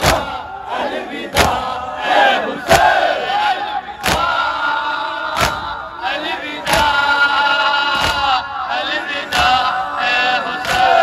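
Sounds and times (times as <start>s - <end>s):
men chanting a lament: 0.0s - 11.0s
hands slapping chests: 4.0s - 4.4s, 5.3s - 5.8s, 6.6s - 7.0s, 7.9s - 8.3s, 9.3s - 9.7s, 10.5s - 11.0s.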